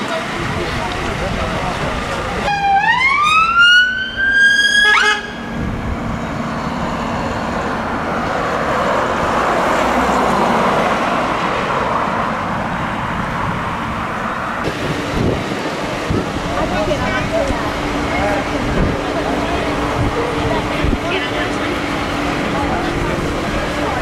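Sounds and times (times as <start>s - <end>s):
car passing: 0.0s - 24.0s
emergency vehicle siren: 0.9s - 9.0s.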